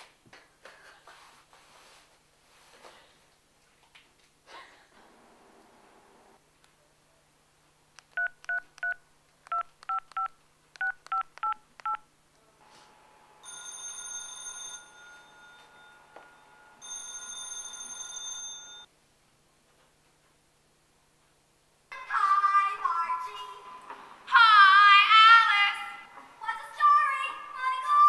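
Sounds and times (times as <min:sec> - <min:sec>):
phone keypad tones: 0:08.2 - 0:12.0
mobile phone ringing: 0:13.4 - 0:18.9.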